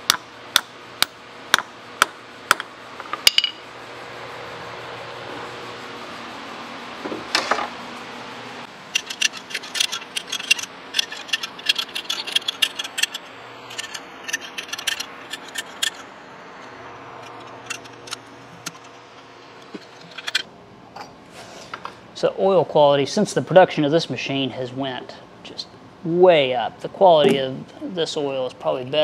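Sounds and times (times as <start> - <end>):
ratchet clicking: 8.9 - 16.0.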